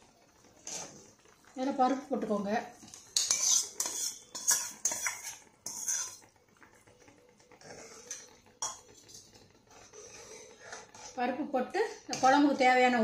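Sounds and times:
spoon scraping and tapping pan: 2.8s - 6.9s, 7.5s - 11.3s, 12.0s - 12.6s.

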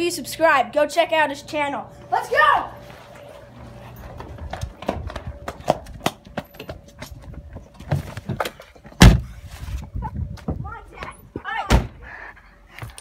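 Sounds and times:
loud thump: 9.0s - 9.3s.

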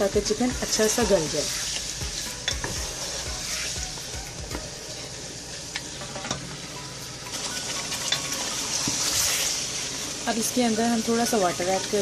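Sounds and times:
chicken sizzling in oil: 0.0s - 12.0s.

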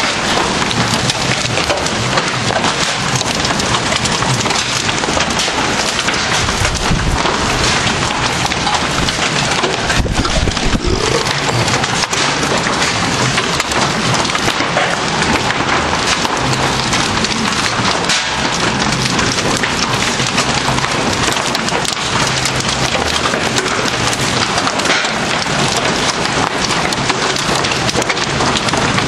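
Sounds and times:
hail clattering on hard surfaces: 0.0s - 29.0s
low rumbles: 5.9s - 14.5s
heavy rain hissing: 6.5s - 14.1s.

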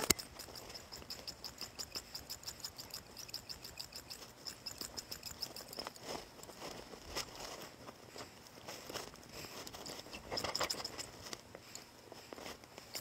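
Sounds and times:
insect chirping: 0.0s - 6.1s.

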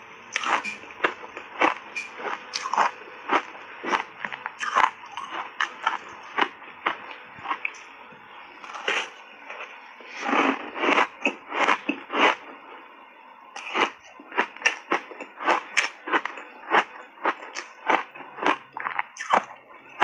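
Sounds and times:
ice crunching between teeth: 0.4s - 7.8s, 8.6s - 9.2s, 13.6s - 19.6s.

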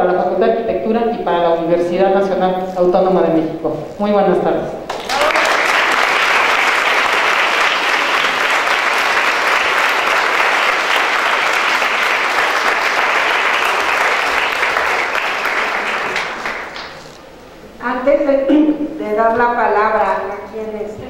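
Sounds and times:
crowd applauding: 4.9s - 17.2s.

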